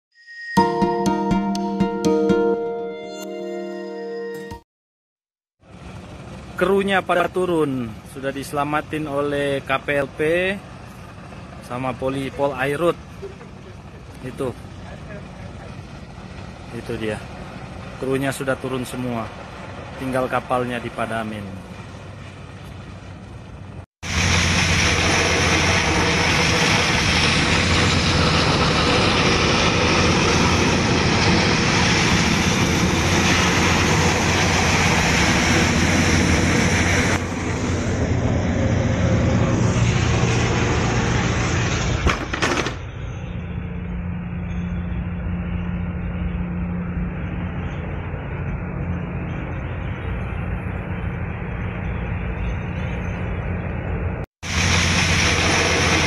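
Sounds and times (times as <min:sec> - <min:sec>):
boat engine drone: 0:05.6 - 0:56.0
water cannons spraying: 0:24.1 - 0:29.3, 0:54.5 - 0:56.0.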